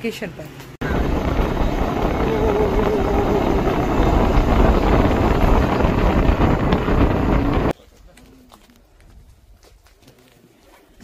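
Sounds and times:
motorcycle running: 0:00.8 - 0:07.7
wind buffeting microphone: 0:00.8 - 0:07.8.

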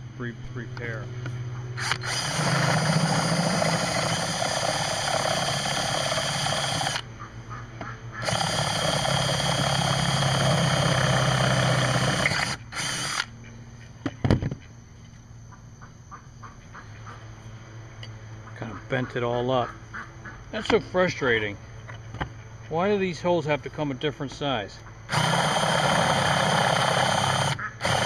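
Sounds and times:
cordless drill boring metal: 0:01.8 - 0:07.0, 0:08.2 - 0:13.3, 0:25.1 - 0:28.0.

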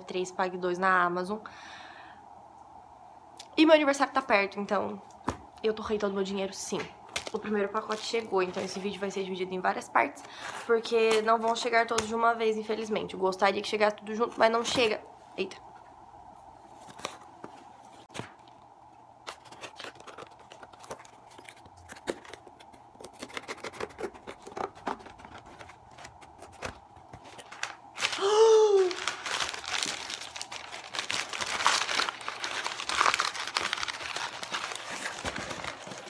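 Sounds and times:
paper packing crinkling and tearing: 0:07.1 - 0:09.1, 0:19.2 - 0:36.0.

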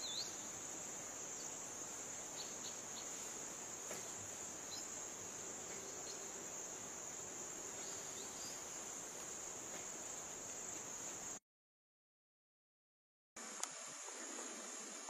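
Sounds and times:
faint outdoor hiss: 0:00.0 - 0:11.4, 0:13.4 - 0:15.0
high-pitched insect chorus: 0:00.0 - 0:11.4.

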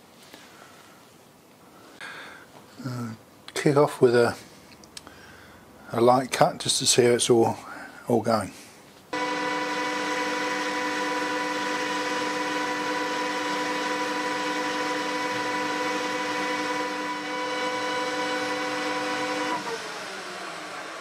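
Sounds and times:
metal lathe whining: 0:09.2 - 0:21.0.

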